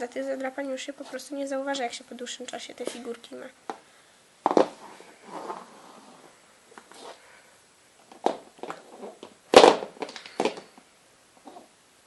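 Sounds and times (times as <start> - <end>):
soft rustle: 0.7 - 1.6, 4.5 - 7.5, 8.2 - 9.4
plastic figurines clacking on floor: 8.2 - 10.8.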